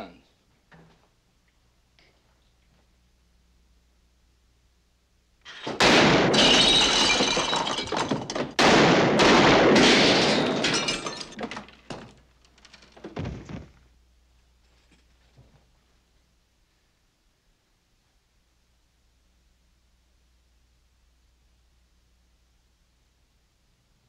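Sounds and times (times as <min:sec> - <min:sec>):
glass breaking: 0:05.5 - 0:13.5.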